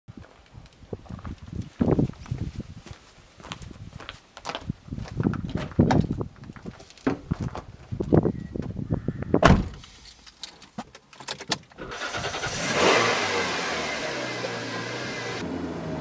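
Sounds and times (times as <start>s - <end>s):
knocks and shuffling: 0.2s - 8.8s
car door slamming: 9.4s - 9.8s
car engine starting and idling: 11.8s - 16.0s.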